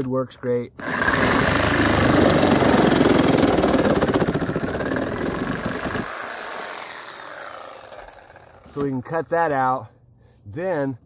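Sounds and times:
reciprocating saw cutting pipe: 0.8 - 8.8.

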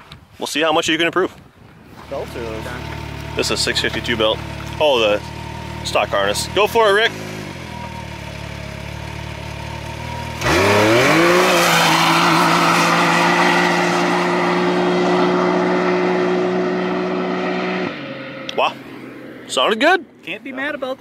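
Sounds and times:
tires spraying dirt: 1.9 - 8.0, 8.8 - 19.8
engine idling and revving: 2.0 - 20.7.

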